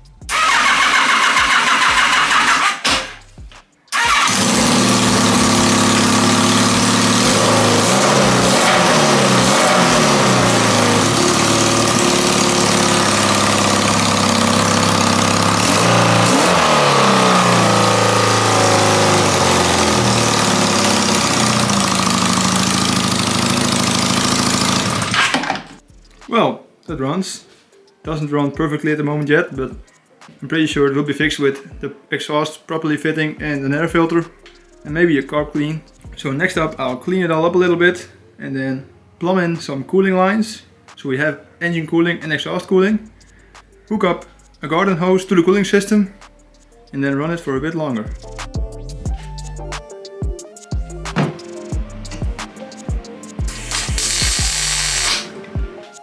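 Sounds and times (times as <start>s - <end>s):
engine starter turning over: 0.3s - 3.3s, 3.9s - 25.8s, 53.4s - 55.4s
motorcycle engine revving: 0.3s - 3.3s, 3.9s - 25.8s, 53.4s - 55.3s.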